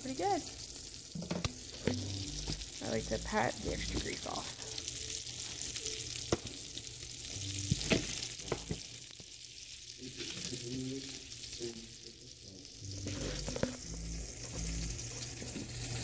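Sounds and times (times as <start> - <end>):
meat sizzling in a pan: 0.0 - 16.0.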